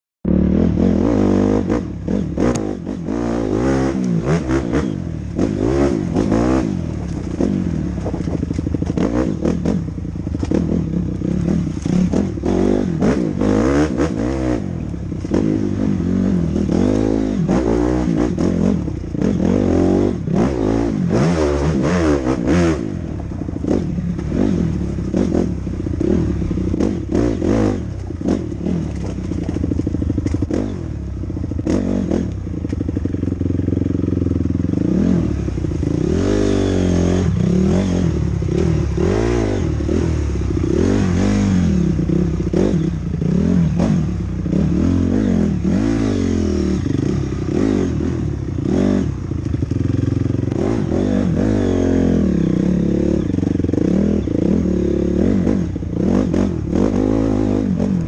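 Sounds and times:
dirt bike engine revving: 0.2 - 58.0
bike rattling over rough ground: 5.4 - 12.8, 23.2 - 31.8.

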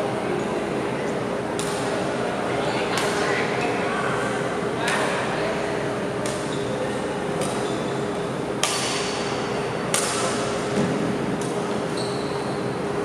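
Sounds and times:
badminton racket hitting shuttlecock: 8.6 - 9.2.

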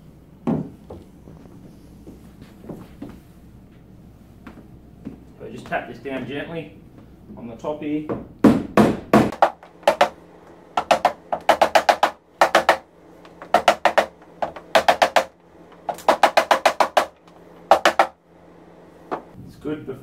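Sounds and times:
rubber mallet tapping plastic: 10.8 - 18.1.

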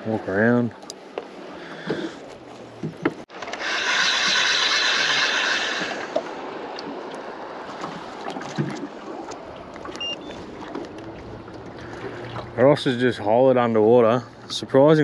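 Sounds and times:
water lapping against boat: 0.8 - 14.7
fishing line rushing off reel: 3.4 - 6.2.

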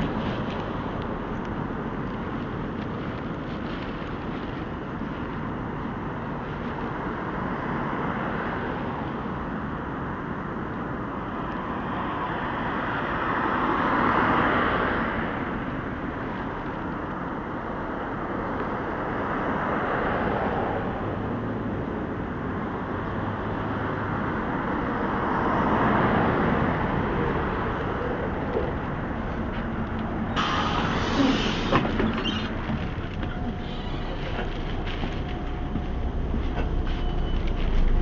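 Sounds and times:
city street traffic: 0.0 - 38.0
vehicle passing close: 25.7 - 38.0.

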